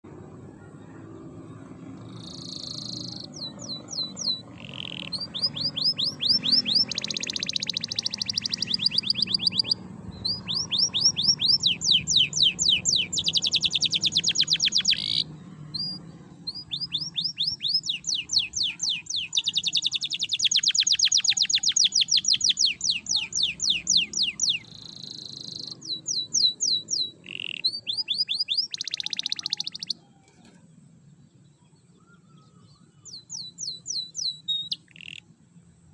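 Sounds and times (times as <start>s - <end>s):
canary singing fast trills: 1.6s - 30.1s, 32.0s - 35.4s.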